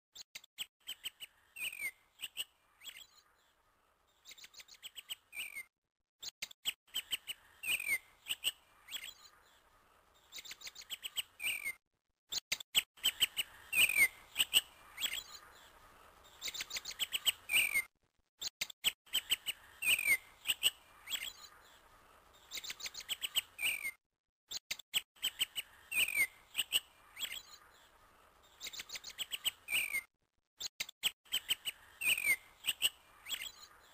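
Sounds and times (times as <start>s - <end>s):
bird chirps and whistles: 0.8s - 3.2s, 4.3s - 5.7s, 6.6s - 9.3s, 10.3s - 11.8s, 16.4s - 17.9s, 18.8s - 21.5s, 22.5s - 24.0s, 25.2s - 27.6s, 28.6s - 30.1s, 30.7s - 33.7s.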